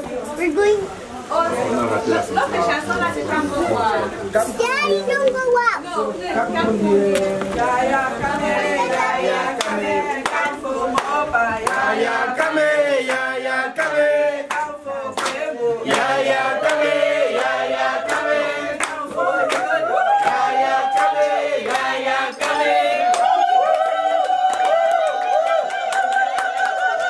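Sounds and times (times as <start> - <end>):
group singing: 5.8 - 27.0
rhythmic handclapping: 7.1 - 27.0.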